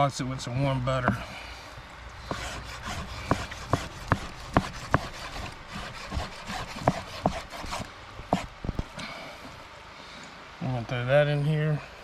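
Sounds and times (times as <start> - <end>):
knife chopping on wooden board: 2.3 - 8.5.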